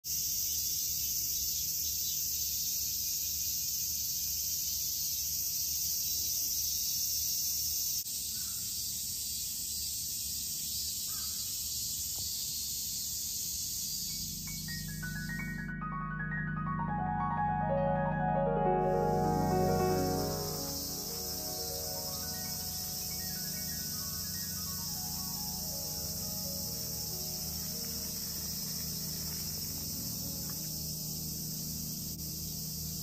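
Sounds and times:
cicadas chorus: 0:00.0 - 0:15.7, 0:18.9 - 0:33.0
mallet percussion music: 0:14.1 - 0:26.4.

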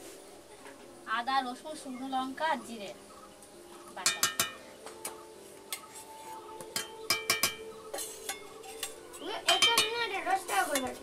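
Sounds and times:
steel spoon clinking against bowl: 0:04.0 - 0:04.6, 0:06.8 - 0:10.1, 0:10.7 - 0:11.0.

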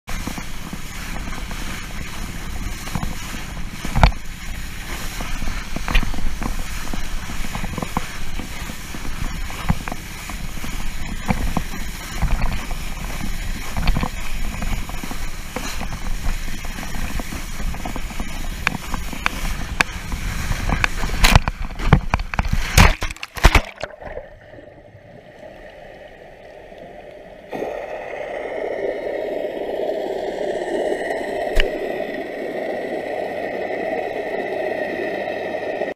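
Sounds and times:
board knocking over waves: 0:00.1 - 0:24.3, 0:31.5 - 0:31.8
wind buffeting camera: 0:00.1 - 0:24.4
water spray rushing: 0:00.1 - 0:24.8, 0:25.4 - 0:35.9
muffled underwater rush: 0:00.1 - 0:35.9
loud splashes: 0:22.4 - 0:24.5.

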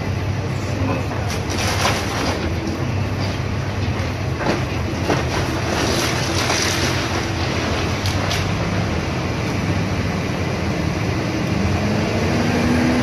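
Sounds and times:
excavator diesel engine running: 0:00.0 - 0:13.0
falling debris: 0:01.2 - 0:02.8, 0:04.4 - 0:09.0
timber cracking and splintering: 0:01.3 - 0:02.6, 0:04.4 - 0:08.9.

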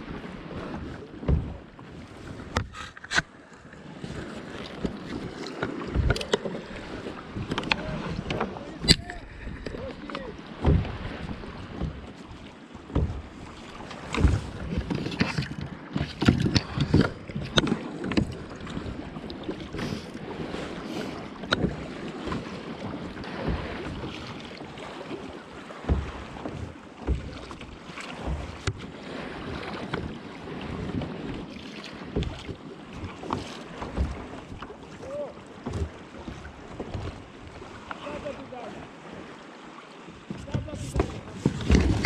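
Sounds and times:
water splashing against kayak: 0:00.0 - 0:42.0
short knocks: 0:01.2 - 0:01.6, 0:07.4 - 0:12.2, 0:12.9 - 0:18.3.

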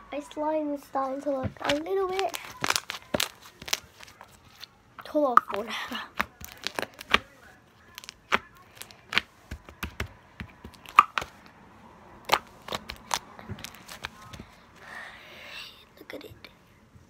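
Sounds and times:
bead slime crackling: 0:01.6 - 0:04.4, 0:05.2 - 0:07.2, 0:07.9 - 0:09.3.

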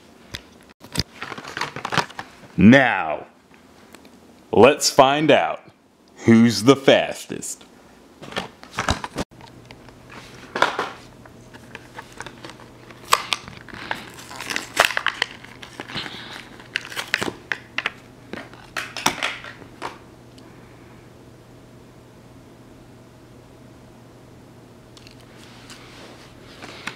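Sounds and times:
plastic packaging crinkling and tearing: 0:00.8 - 0:02.4, 0:11.5 - 0:19.5.

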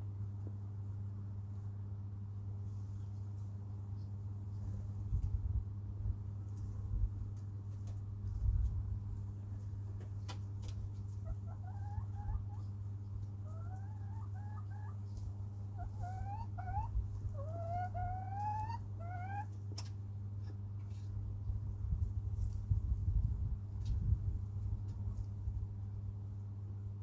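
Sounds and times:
steady low hum: 0:00.0 - 0:27.0
chicken calling: 0:11.1 - 0:15.1, 0:15.7 - 0:19.6.

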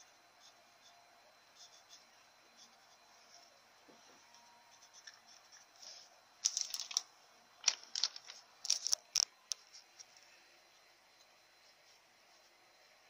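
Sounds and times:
paper rustling and crackling: 0:05.8 - 0:10.2.

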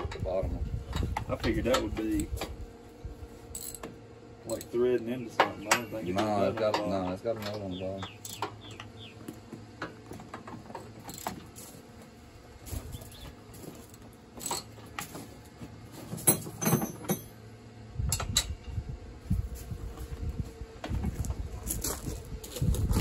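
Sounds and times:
wind rumble on microphone: 0:00.0 - 0:03.3, 0:17.9 - 0:23.0
metal knocks: 0:05.3 - 0:08.9.

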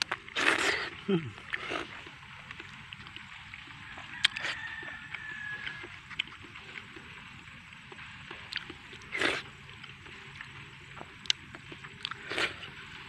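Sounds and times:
loud bite: 0:00.0 - 0:02.0
man chewing: 0:00.0 - 0:13.0.

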